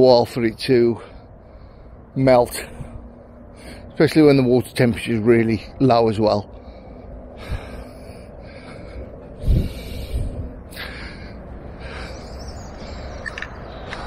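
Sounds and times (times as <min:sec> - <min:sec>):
camera handling rumble: 0:13.1 - 0:14.0.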